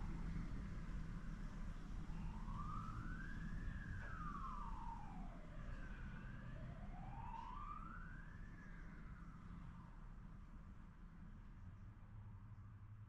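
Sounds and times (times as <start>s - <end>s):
siren wailing slowly: 2.0s - 10.0s.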